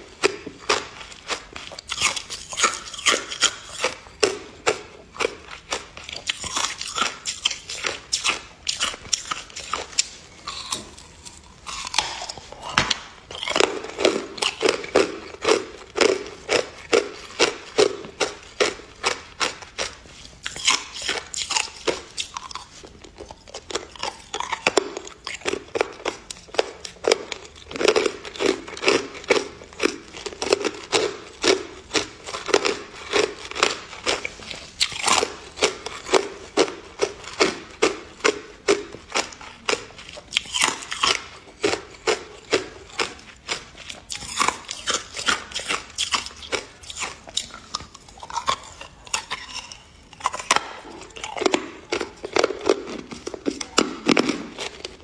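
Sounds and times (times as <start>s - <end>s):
ice crunching being chewed: 0.0s - 55.0s.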